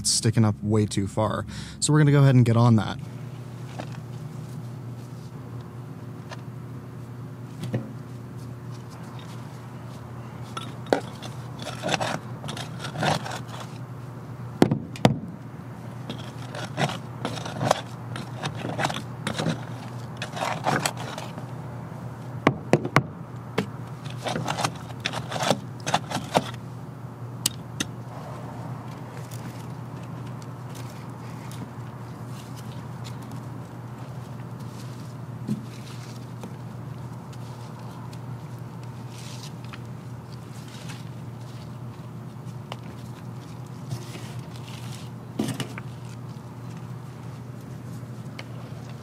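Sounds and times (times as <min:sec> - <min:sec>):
steady low hum: 0:00.0 - 0:49.0
shovel scraping soil: 0:10.5 - 0:13.8, 0:16.0 - 0:21.4, 0:24.0 - 0:26.6, 0:43.0 - 0:46.3.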